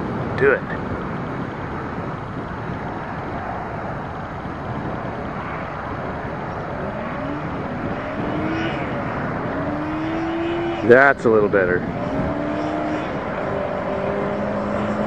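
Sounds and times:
buggy and quad engines revving: 4.0 - 15.0.

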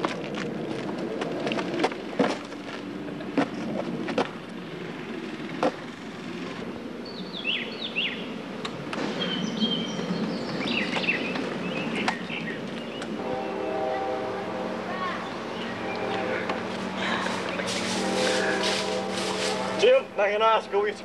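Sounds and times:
songbirds chirping: 4.4 - 21.0.

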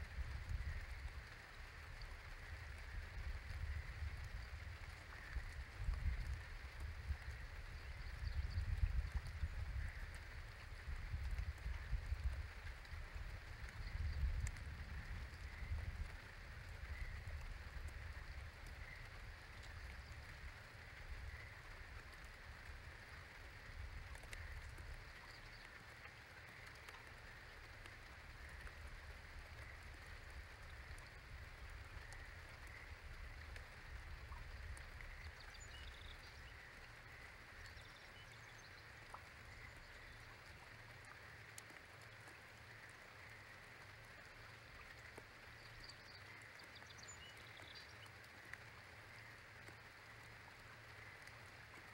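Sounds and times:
low wind rumble: 0.0 - 25.7
steady low hiss: 0.0 - 51.9
water drips: 0.0 - 51.9.

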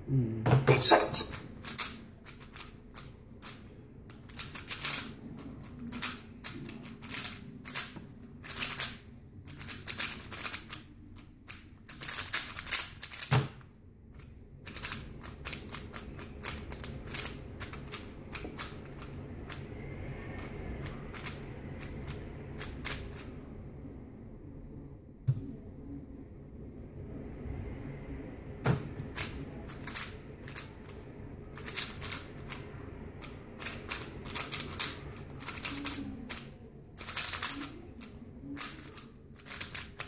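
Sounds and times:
puzzle cube clacking: 0.6 - 13.6, 14.2 - 19.6, 20.8 - 23.3, 29.0 - 32.6, 33.2 - 40.0.

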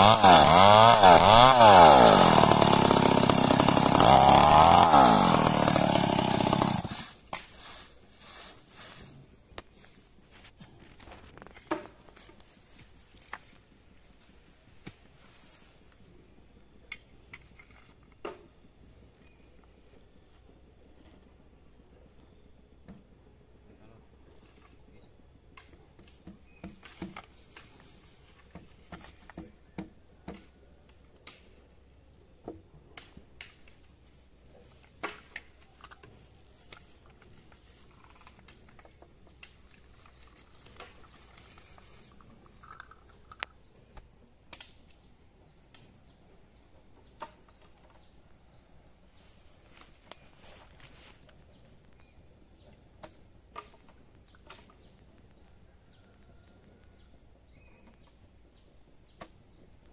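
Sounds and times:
faint bird chirps: 54.2 - 59.9.

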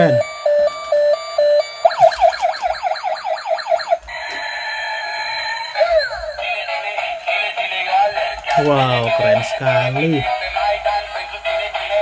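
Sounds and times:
warbling beeps: 0.0 - 4.0
rising siren chirps: 0.0 - 6.3.

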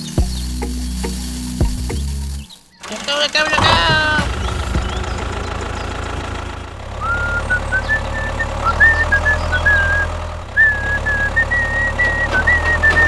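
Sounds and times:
tractor engine droning: 0.0 - 13.0
high whistled tune: 7.0 - 13.0.

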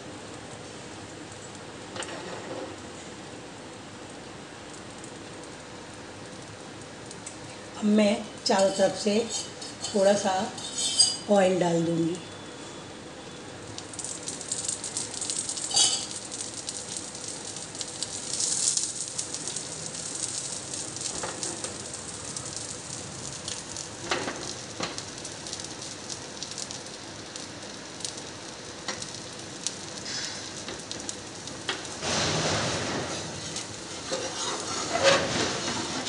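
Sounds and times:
oil sizzling and crackling: 0.0 - 36.0.

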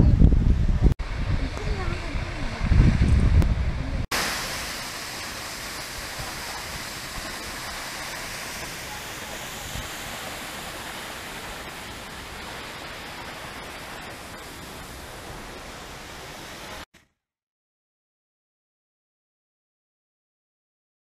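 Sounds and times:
waterfall rushing onto rocks: 4.1 - 16.9.

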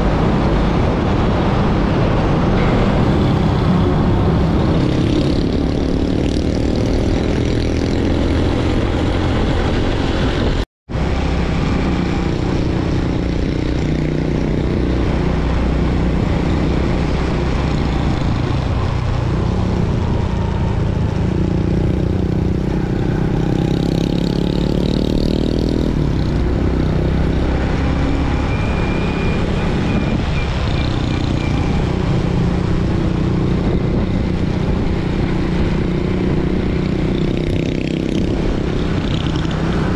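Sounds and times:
wind rush on microphone: 0.0 - 28.2, 29.1 - 39.9.

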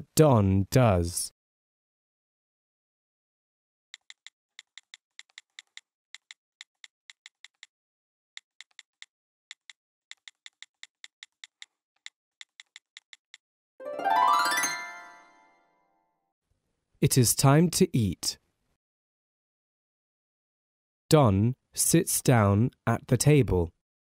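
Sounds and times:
computer keyboard typing: 4.0 - 7.7, 8.4 - 13.4.

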